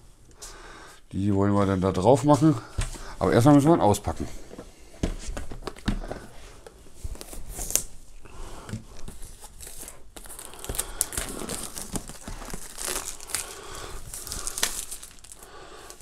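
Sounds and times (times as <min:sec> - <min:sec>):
cardboard crinkling: 0:08.9 - 0:16.0
cardboard box being opened: 0:09.1 - 0:13.4.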